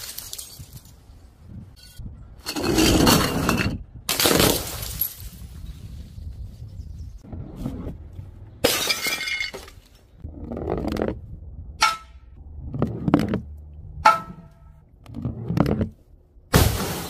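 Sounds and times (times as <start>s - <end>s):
glass sheet smashing: 16.6s - 17.0s.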